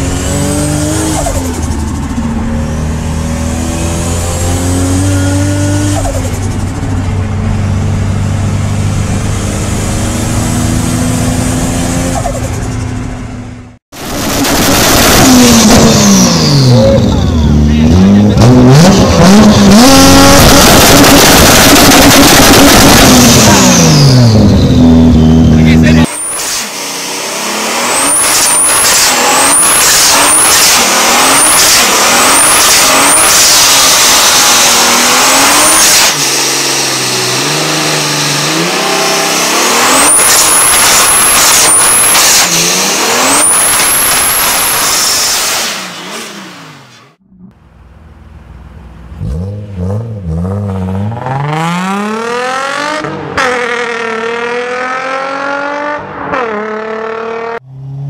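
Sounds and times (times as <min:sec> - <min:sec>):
car engine revving: 0:00.0 - 0:58.0
car accelerating hard: 0:14.0 - 0:47.6, 0:49.1 - 0:58.0.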